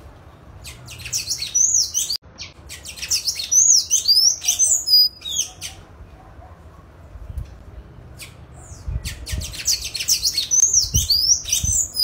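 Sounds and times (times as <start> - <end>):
bird singing high squeaky notes: 0.6 - 5.8, 8.2 - 12.0.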